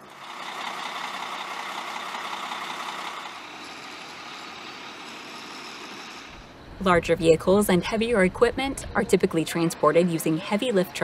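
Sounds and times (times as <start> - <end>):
road hiss: 0.0 - 7.0
heavy trucks engine running: 0.0 - 11.0.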